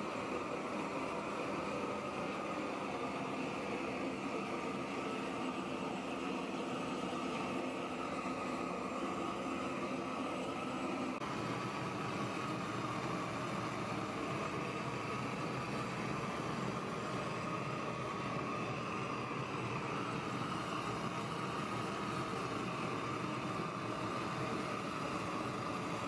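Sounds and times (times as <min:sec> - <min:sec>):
propane torch flame hissing: 0:00.0 - 0:26.0.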